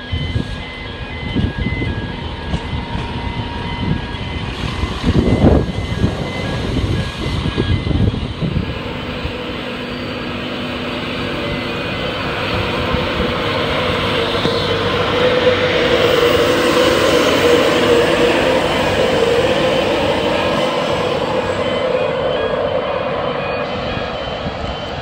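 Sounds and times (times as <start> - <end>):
train rumble: 0.0 - 25.0
faint two-tone beeping: 15.9 - 25.0.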